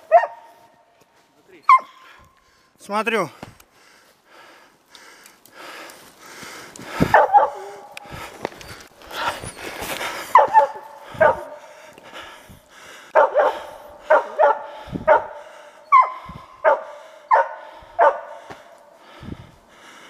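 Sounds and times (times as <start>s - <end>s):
dog barking: 0.0s - 0.7s, 1.7s - 2.0s, 7.1s - 8.0s, 10.3s - 11.7s, 13.1s - 18.7s.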